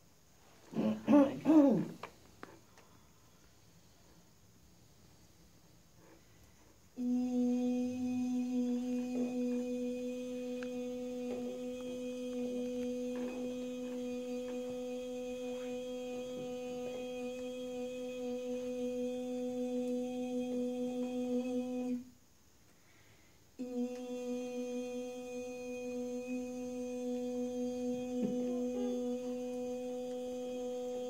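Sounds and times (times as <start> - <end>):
woman humming low note: 7.0 - 22.1, 23.6 - 31.0.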